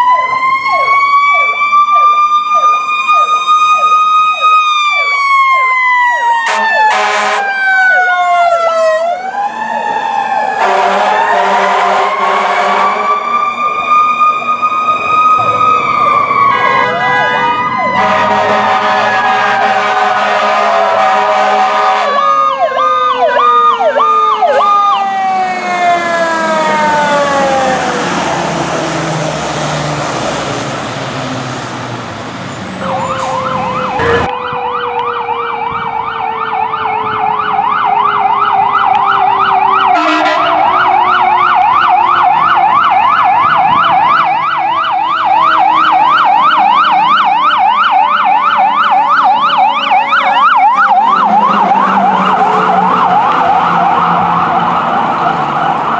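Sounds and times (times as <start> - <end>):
fire truck siren: 0.0 - 55.9
truck engine: 0.0 - 55.9.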